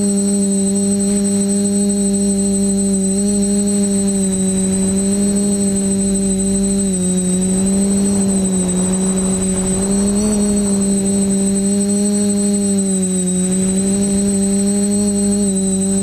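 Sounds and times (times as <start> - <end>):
drone propellers humming: 0.0 - 16.0
thin high whine: 0.0 - 16.0.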